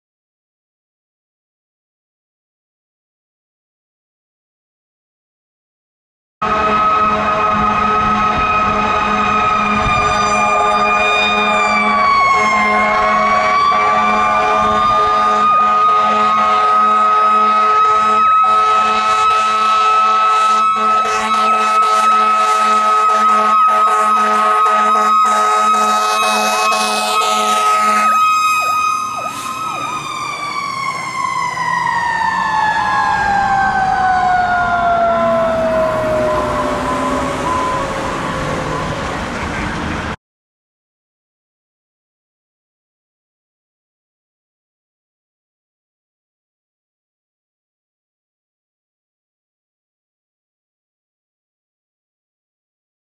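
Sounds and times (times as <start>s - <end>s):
fainter wavering siren: 6.4s - 39.3s
fire engine siren steady tone: 6.4s - 40.2s.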